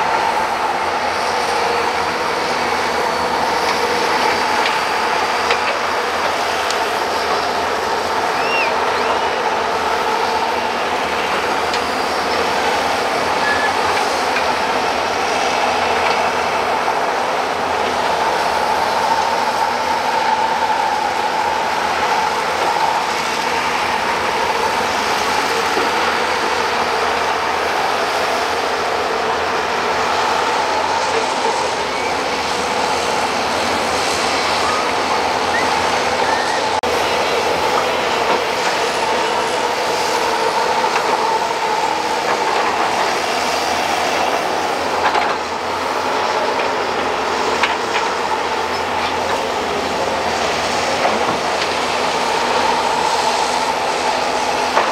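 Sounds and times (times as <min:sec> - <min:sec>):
excavator diesel engines under load: 0:00.0 - 0:54.9
steady whine: 0:00.0 - 0:54.9.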